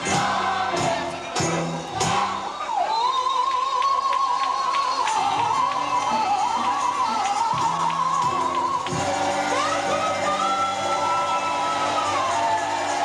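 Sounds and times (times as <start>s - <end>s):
bass notes: 0.0s - 2.5s, 7.6s - 13.0s
drum beats: 0.0s - 2.6s, 6.5s - 13.0s.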